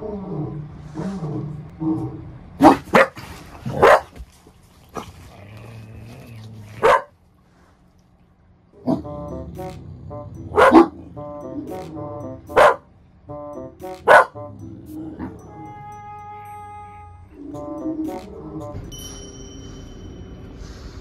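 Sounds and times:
dog barking: 2.6s - 4.2s, 6.8s - 7.1s, 10.6s - 11.0s, 12.5s - 12.8s, 14.1s - 14.4s
dog grumbling: 5.0s - 6.8s.

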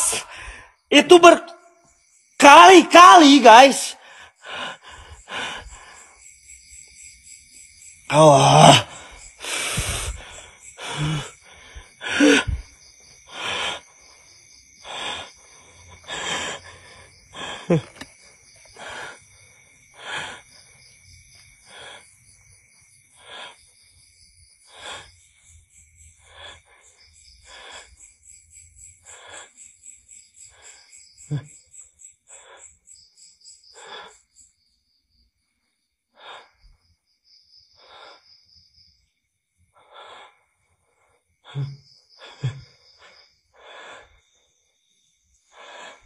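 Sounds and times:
person breathing heavily: 0.0s - 0.8s, 4.0s - 6.2s, 8.1s - 22.2s, 23.1s - 23.7s, 24.6s - 25.3s, 26.1s - 28.1s, 29.0s - 29.6s, 33.7s - 34.3s, 36.1s - 36.8s, 37.7s - 38.4s, 39.7s - 44.4s, 45.4s - 46.0s.

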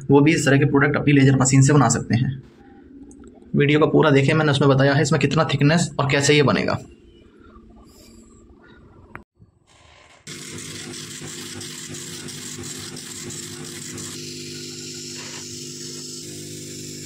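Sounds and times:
laser cutter hum: 10.3s - 17.0s
laser cutting hiss: 10.3s - 17.0s.

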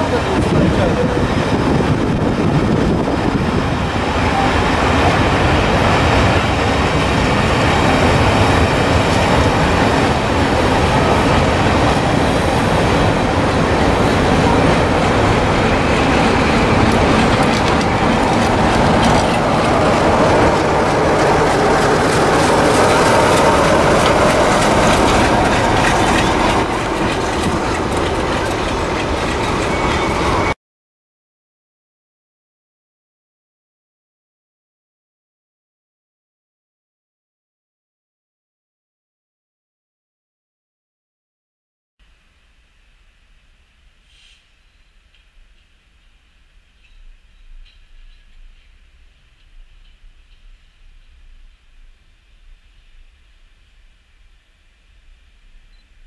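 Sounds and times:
train wheels rumbling on rails: 0.0s - 30.6s, 45.0s - 53.9s.

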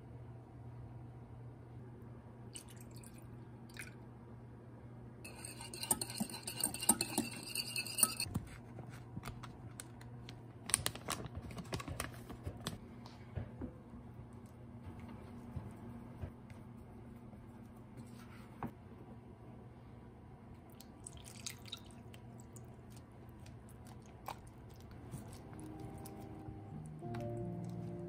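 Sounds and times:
whisk clinking against glass bowl: 5.3s - 8.3s.

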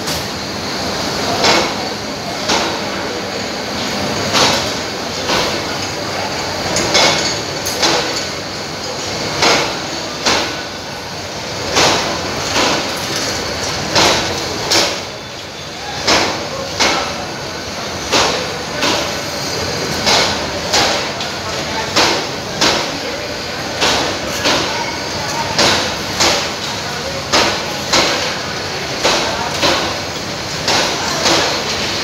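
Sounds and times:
train wheels clacking over rail joint: 11.6s - 17.3s.

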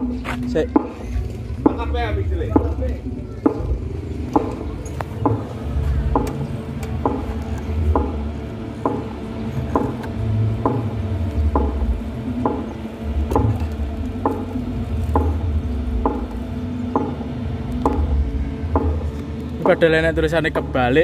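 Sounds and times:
slow beat over heavy bass: 0.0s - 21.0s.

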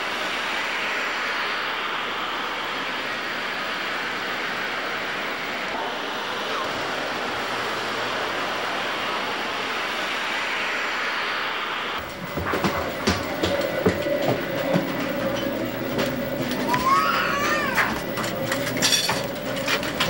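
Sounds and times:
train rushing past platform: 0.0s - 20.0s.

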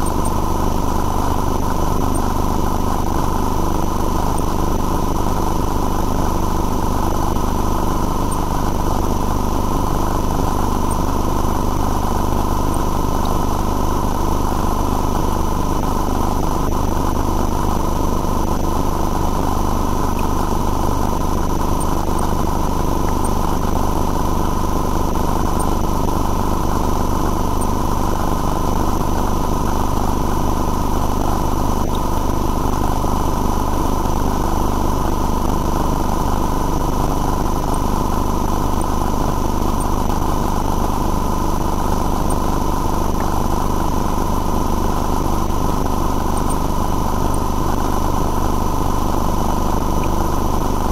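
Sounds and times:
machine drone with whine: 0.0s - 50.9s.

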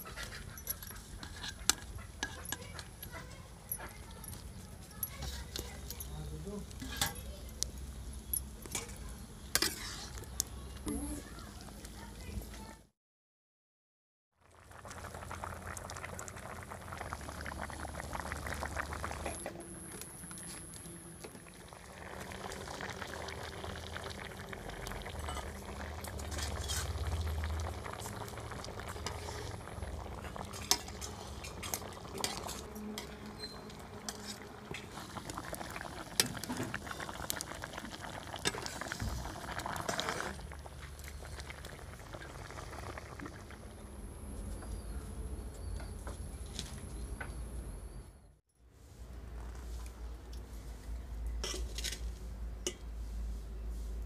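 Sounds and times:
metal spatula stirring: 0.3s - 3.4s, 5.2s - 7.3s, 8.7s - 10.3s, 25.2s - 27.4s, 30.2s - 35.0s, 51.4s - 52.9s
curry bubbling in a pan: 14.4s - 45.0s.

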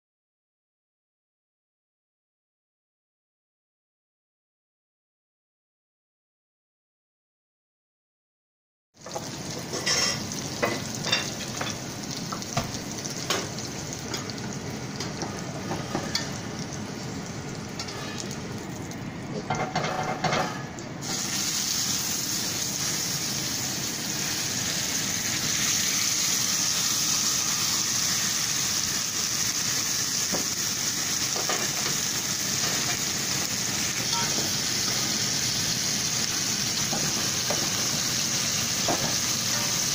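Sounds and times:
oil sizzling in a skillet: 9.0s - 20.3s, 21.0s - 39.9s.

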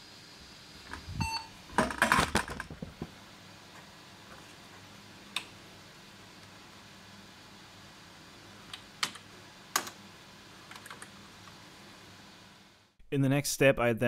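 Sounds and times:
computer speaker beep: 1.2s - 1.5s.

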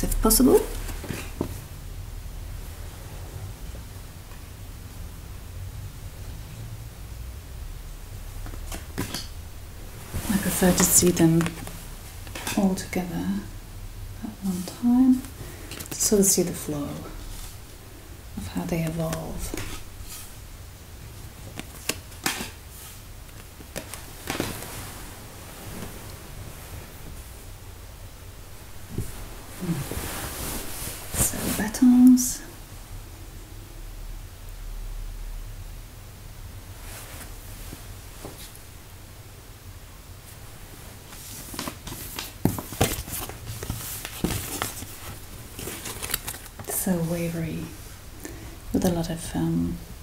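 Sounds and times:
low steady hum: 0.0s - 50.0s
paper cards sliding and rustling: 10.1s - 12.4s, 21.5s - 26.0s, 41.1s - 46.8s.

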